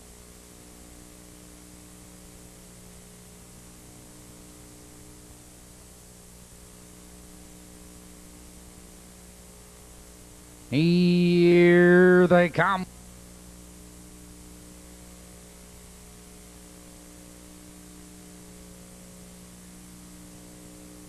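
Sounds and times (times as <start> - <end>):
electrical mains hum: 0.0 - 21.0
recording hiss: 10.7 - 12.9.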